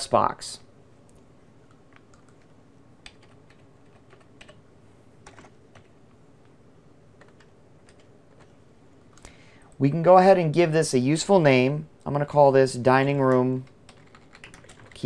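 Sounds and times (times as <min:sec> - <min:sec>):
computer keyboard keystrokes: 0:01.1 - 0:04.6, 0:05.2 - 0:06.0, 0:07.2 - 0:08.5, 0:13.3 - 0:15.0.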